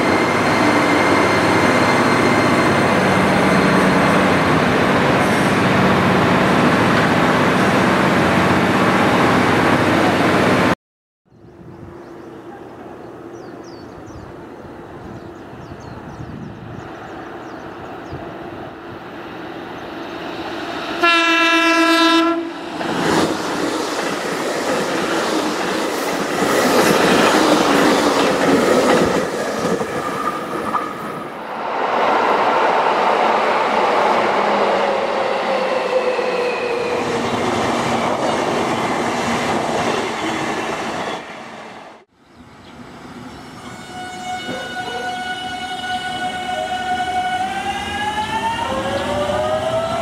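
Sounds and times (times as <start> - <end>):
train wheel and rail noise: 0.0 - 10.8, 11.6 - 50.0
train horn blast: 21.0 - 22.6, 43.6 - 47.6
subway train motor whine braking: 45.3 - 50.0.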